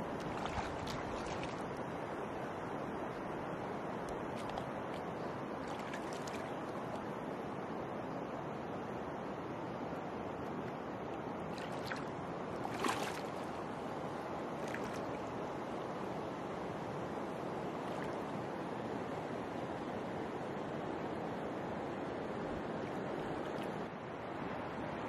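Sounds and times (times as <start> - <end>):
small water splashes: 0.0 - 2.1, 4.1 - 7.0, 11.5 - 13.7, 14.6 - 15.4, 17.8 - 18.3
river water rushing around legs: 0.0 - 25.0.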